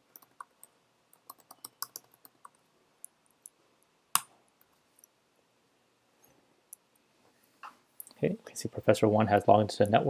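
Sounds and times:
keyboard typing: 0:00.0 - 0:02.6.

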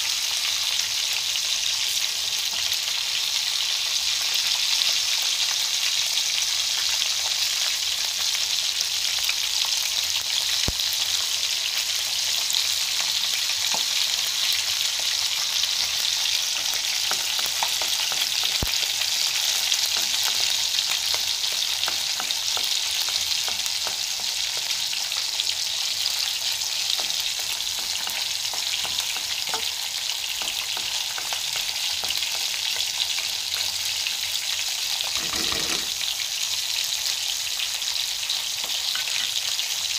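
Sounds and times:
ginger sizzling in hot oil: 0:00.0 - 0:39.9
wooden spatula knocking: 0:35.2 - 0:35.9.

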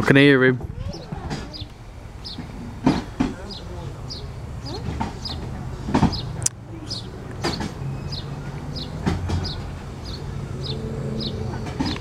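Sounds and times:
small bird chirping: 0:00.8 - 0:02.5, 0:06.1 - 0:12.0
sharp knocks: 0:02.3 - 0:03.5, 0:04.8 - 0:06.3, 0:07.4 - 0:07.8, 0:09.0 - 0:09.7.

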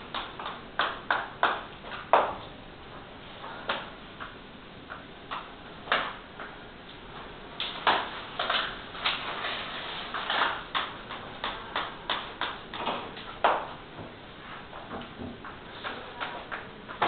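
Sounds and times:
plastic sheet scraping on wall: 0:07.6 - 0:12.2.

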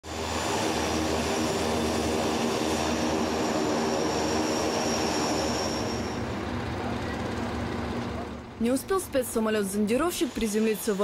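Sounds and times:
high turbine whine: 0:00.0 - 0:11.0
turboprop engines droning: 0:00.0 - 0:11.0.

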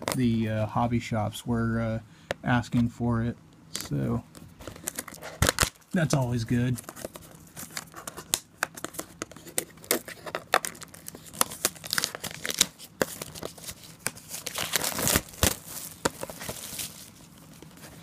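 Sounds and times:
plastic wrap tearing and crinkling: 0:04.7 - 0:05.9, 0:06.6 - 0:17.6.

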